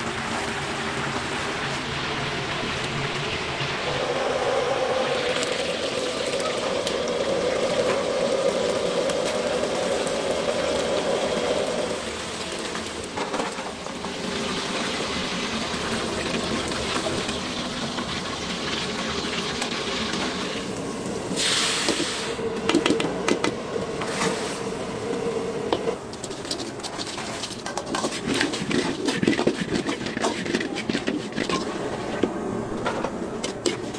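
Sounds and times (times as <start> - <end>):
chicken deep-frying in oil: 0.0 - 33.9
metal clatter and scraping: 26.0 - 33.9.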